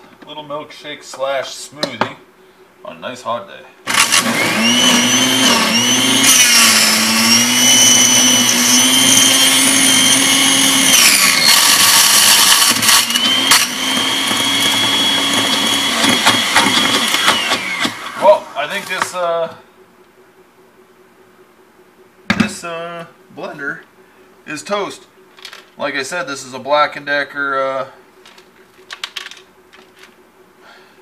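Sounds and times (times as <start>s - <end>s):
blender motor whine: 3.9s - 18.6s.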